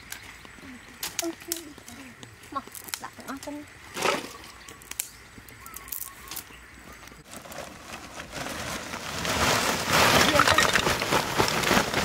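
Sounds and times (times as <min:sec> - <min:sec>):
plastic sack rustling: 0:07.2 - 0:12.0.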